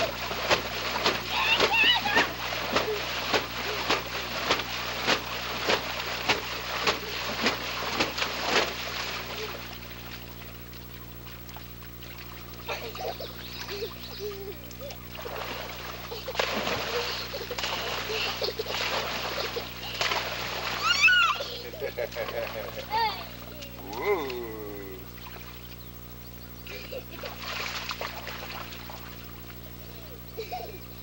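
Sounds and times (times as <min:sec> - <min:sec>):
hands splashing water: 0:00.0 - 0:13.9, 0:14.7 - 0:21.4, 0:27.2 - 0:29.6
steady low hum: 0:00.0 - 0:31.0
water lapping: 0:00.0 - 0:31.0
toddler hooting: 0:20.8 - 0:21.6.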